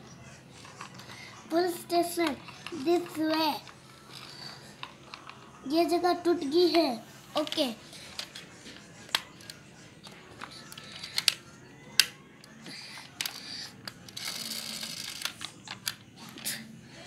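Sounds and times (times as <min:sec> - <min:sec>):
plastic toy clicks and taps: 0:10.4 - 0:11.4.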